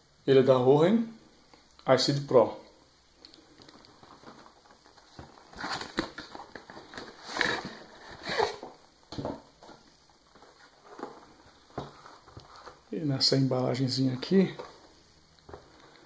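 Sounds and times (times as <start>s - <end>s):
cardboard box scraping and rustling: 6.7s - 8.7s.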